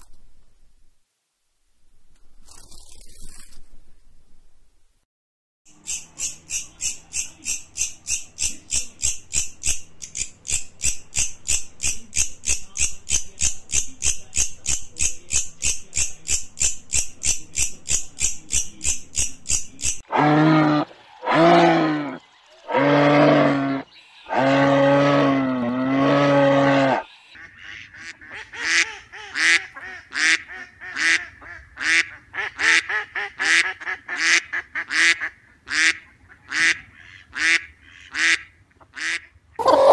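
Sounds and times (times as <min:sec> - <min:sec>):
camel calling: 0:20.1 - 0:27.1.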